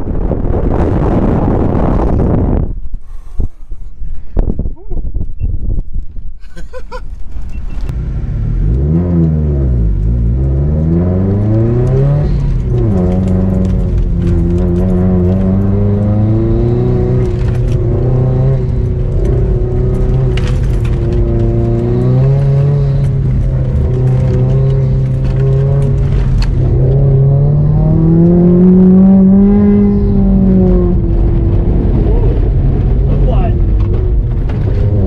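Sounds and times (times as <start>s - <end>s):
car engine heard from inside: 7.3s - 35.0s.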